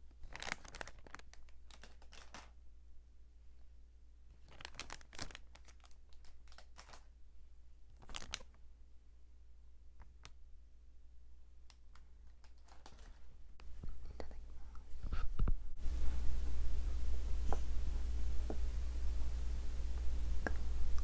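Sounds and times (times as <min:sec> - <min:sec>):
plastic wrappers crinkling: 0:00.2 - 0:02.6, 0:04.3 - 0:07.1, 0:07.9 - 0:08.6, 0:11.7 - 0:13.6.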